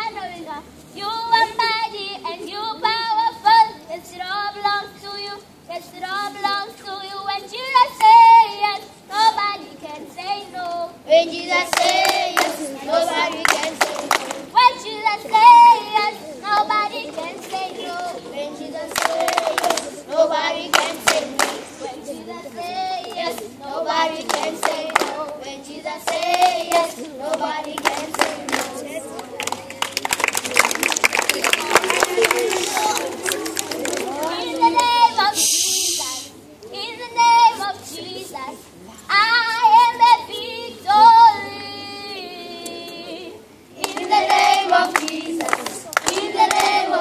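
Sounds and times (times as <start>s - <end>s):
children singing: 11.1s - 29.7s, 39.2s - 47.0s
hand claps: 11.7s - 12.6s, 13.3s - 14.4s, 18.9s - 20.0s, 20.7s - 21.7s, 24.2s - 25.4s, 26.0s - 34.9s, 43.8s - 46.8s.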